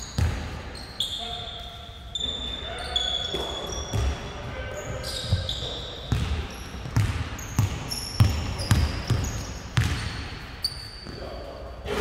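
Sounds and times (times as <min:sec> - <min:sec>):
sneaker squeaks on court: 0:00.0 - 0:11.2
basketball bouncing on hard floor: 0:05.3 - 0:10.1.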